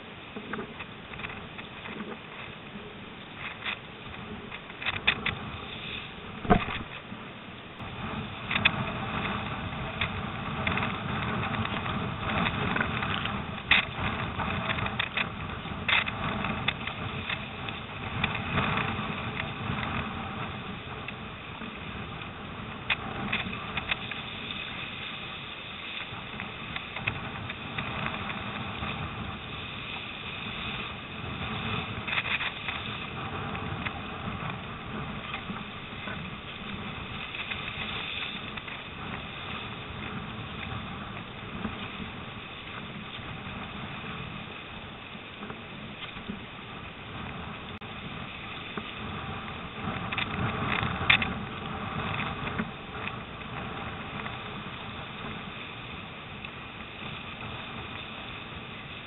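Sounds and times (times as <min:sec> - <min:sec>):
storm wind: 0:00.0 - 0:59.0
waves splashing against a boat hull: 0:00.0 - 0:59.0.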